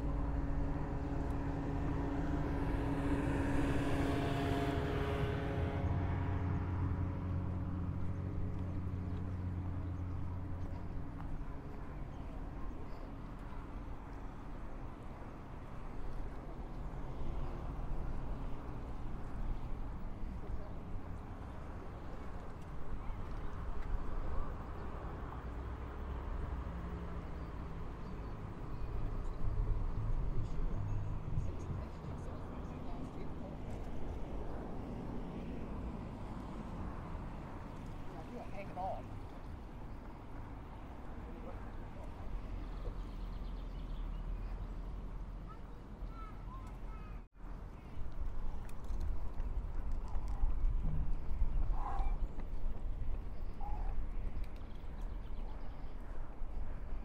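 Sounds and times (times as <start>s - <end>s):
passing engine hum: 0.0s - 57.0s.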